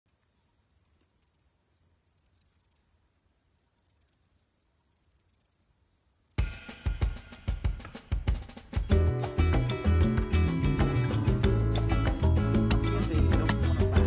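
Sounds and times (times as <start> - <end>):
music with drum beats: 6.4 - 14.0.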